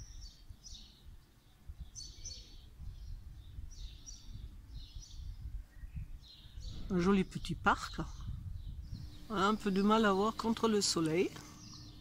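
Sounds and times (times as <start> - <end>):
small birds chirping: 0.0 - 12.0
low outdoor rumble: 6.6 - 12.0.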